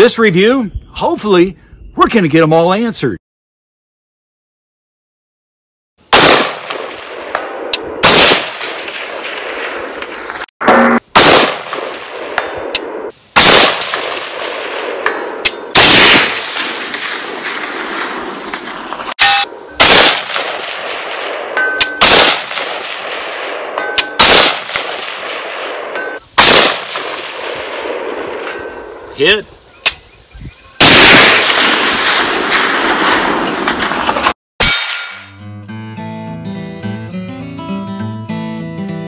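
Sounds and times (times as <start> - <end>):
rifle shots with echo: 6.1 - 29.2, 30.8 - 35.2.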